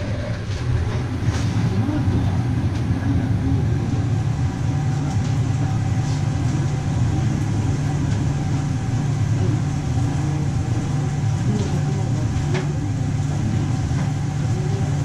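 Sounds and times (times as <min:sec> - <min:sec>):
ventilation fan rumble: 0:00.0 - 0:15.0.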